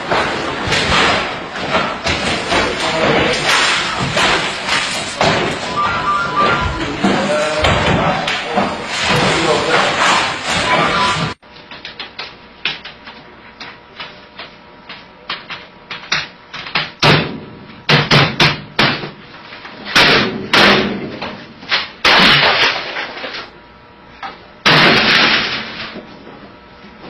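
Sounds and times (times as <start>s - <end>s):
knocks and bangs on a desk: 15.3s - 19.2s.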